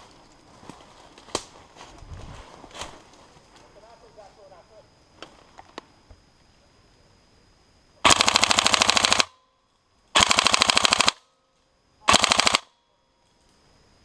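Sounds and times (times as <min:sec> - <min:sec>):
airsoft rifle firing bursts: 0:08.0 - 0:09.4, 0:10.2 - 0:11.3, 0:12.0 - 0:12.7.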